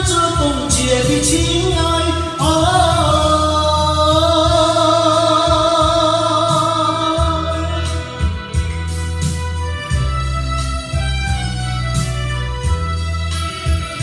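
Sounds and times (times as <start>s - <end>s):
man singing karaoke: 0.0s - 9.0s
backing track with bass beat: 0.0s - 14.0s.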